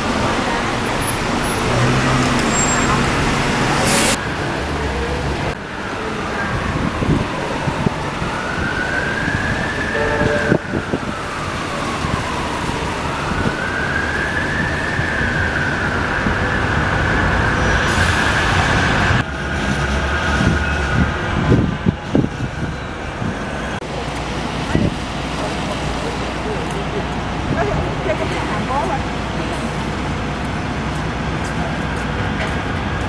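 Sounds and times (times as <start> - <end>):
street traffic rumble: 0.0 - 33.0
siren wailing: 5.9 - 19.2.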